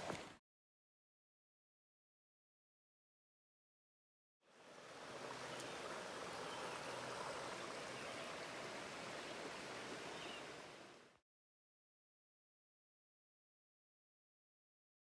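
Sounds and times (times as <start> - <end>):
stream rushing over stones: 4.5 - 11.2.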